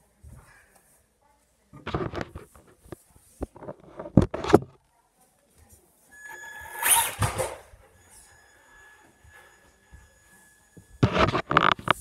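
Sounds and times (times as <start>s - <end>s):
faint high whine: 6.1s - 11.5s.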